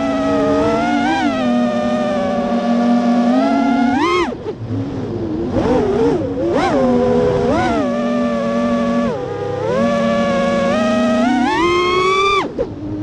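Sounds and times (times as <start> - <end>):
quadcopter motors whining: 5.6 - 12.6.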